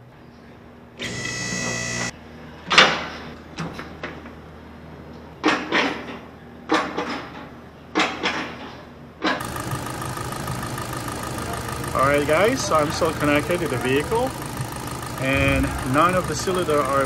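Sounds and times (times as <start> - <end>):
car engine starting and idling: 9.4 - 17.0.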